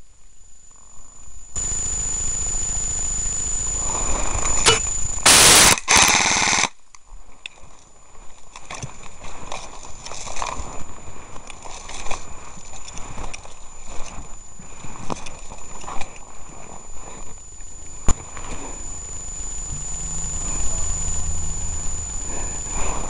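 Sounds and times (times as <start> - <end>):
airsoft rifle firing full auto: 4.6 - 6.8
twigs and undergrowth crackling: 7.1 - 19.4.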